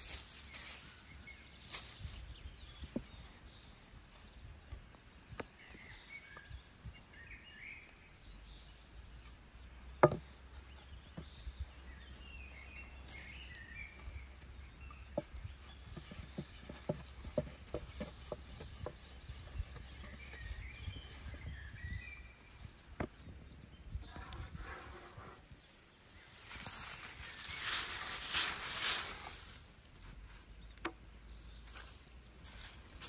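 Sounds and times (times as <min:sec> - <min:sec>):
small birds chirping: 0:00.0 - 0:33.0
sharp knocks and taps: 0:10.0 - 0:10.3, 0:15.1 - 0:20.1.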